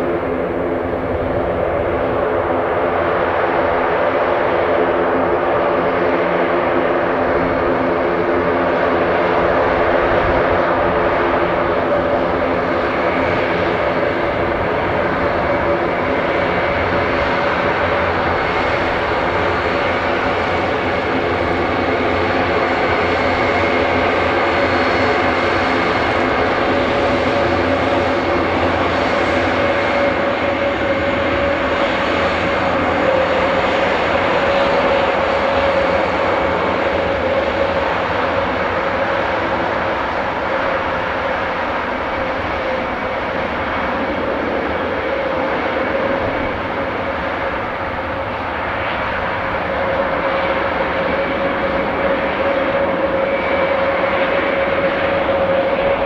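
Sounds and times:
high engine whine: 0.0 - 56.0
turboprop engines droning: 0.0 - 56.0.

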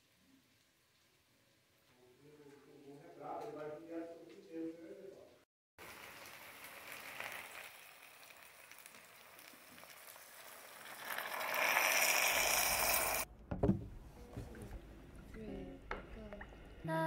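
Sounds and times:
water sizzling on hot food: 5.8 - 13.3
low knock: 13.3 - 14.9.

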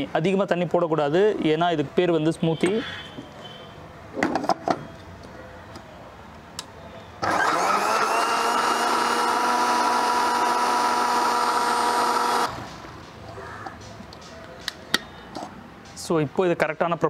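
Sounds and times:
blender motor running: 7.2 - 12.6.

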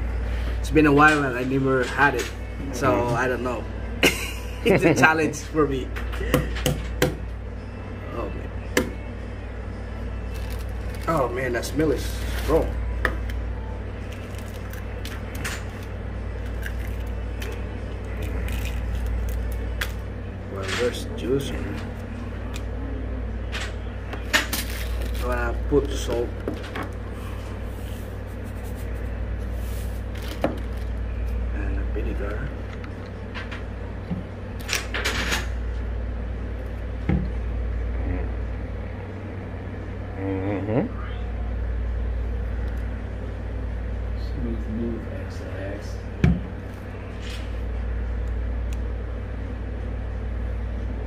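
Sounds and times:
steady low hum: 0.0 - 51.0
crackly handling noises: 10.2 - 13.4, 14.0 - 22.7, 23.4 - 35.9.

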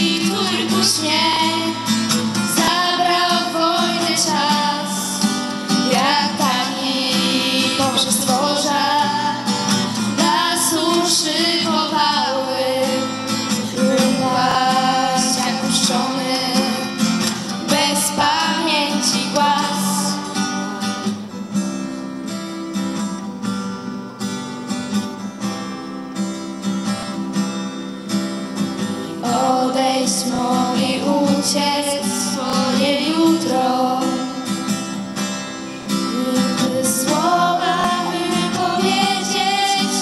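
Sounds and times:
girls singing together: 0.0 - 20.8, 29.0 - 34.4, 36.1 - 40.0
acoustic guitar strumming: 0.0 - 40.0.

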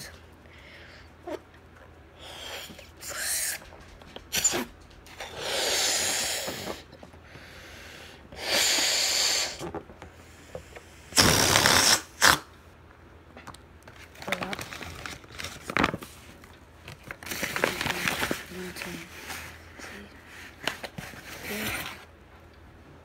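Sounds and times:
exhaling into a balloon: 4.3 - 9.7, 11.0 - 12.4.

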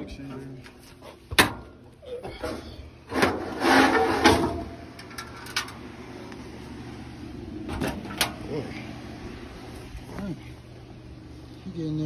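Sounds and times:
sheet metal scraping and clattering: 2.3 - 5.8.

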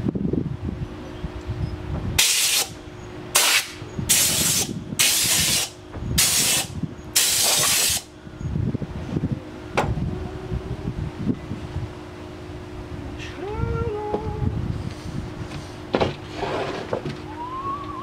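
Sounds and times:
welding bursts: 2.2 - 2.7, 3.4 - 8.1.

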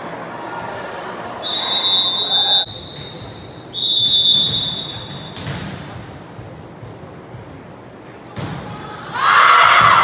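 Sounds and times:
referee's whistle blasts: 1.4 - 5.4.

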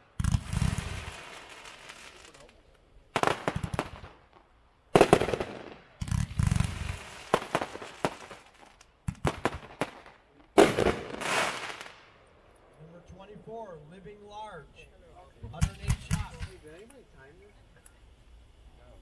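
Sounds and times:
firework crackling: 0.0 - 12.3, 15.0 - 19.0
firework volleys of sharp bangs: 0.0 - 12.4, 15.4 - 16.8.

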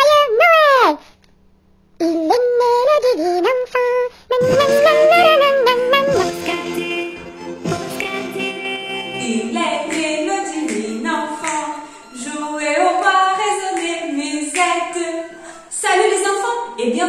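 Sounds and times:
woman singing a cappella: 4.4 - 17.0.

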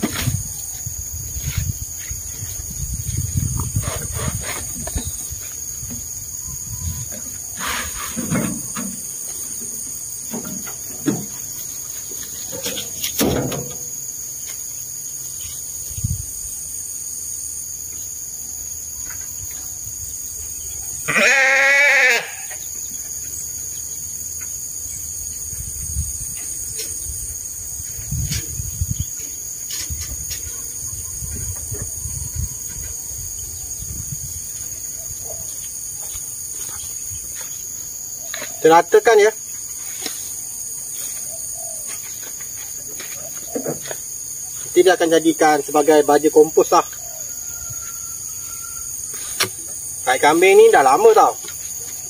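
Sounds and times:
sheep bleating: 21.0 - 22.6.

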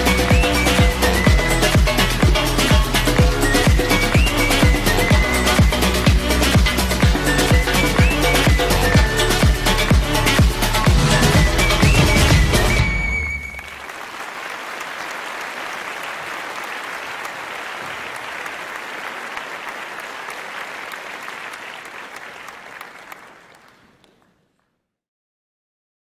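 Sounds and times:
crowd applause: 11.0 - 24.4.

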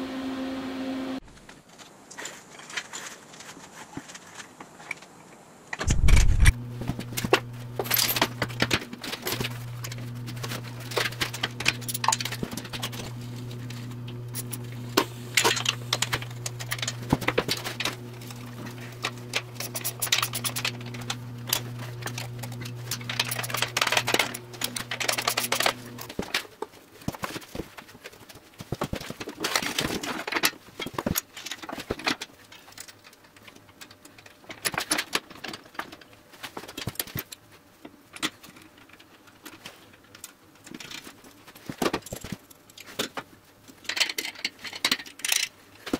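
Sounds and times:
steady low hum: 5.9 - 26.4
tools and metal parts clinking: 5.9 - 27.6, 29.3 - 37.4, 38.1 - 45.9.

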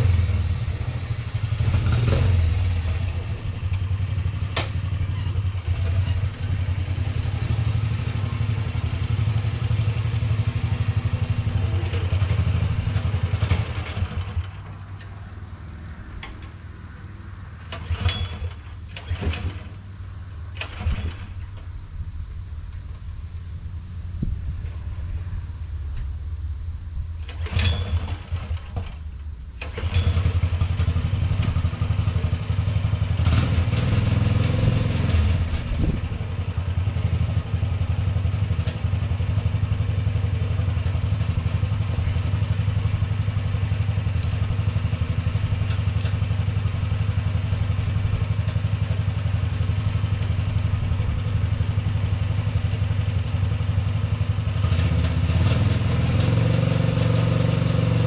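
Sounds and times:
small engine running: 27.2 - 58.0.

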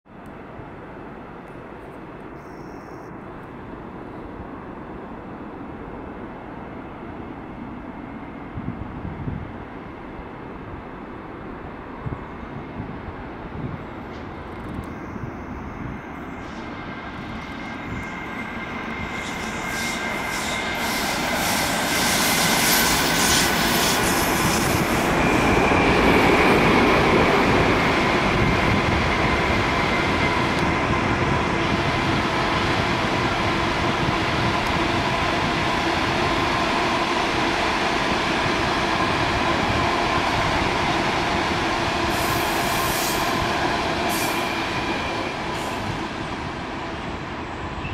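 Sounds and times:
high-speed train passing: 0.1 - 47.9
freight train wheels rumbling: 0.2 - 47.9
high wheel squeal: 17.6 - 25.9.

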